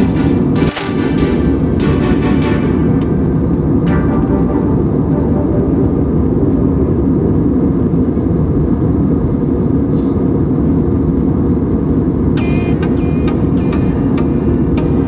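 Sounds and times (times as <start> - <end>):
airliner cabin engine rumble: 2.6 - 15.0.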